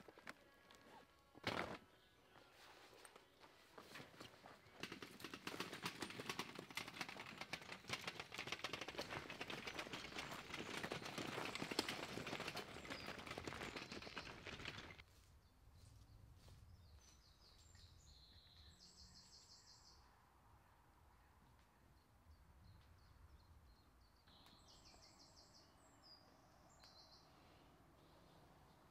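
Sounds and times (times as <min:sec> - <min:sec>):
wagon wheels rattling over dirt path: 0:04.0 - 0:15.0
bird chirping: 0:09.0 - 0:28.9.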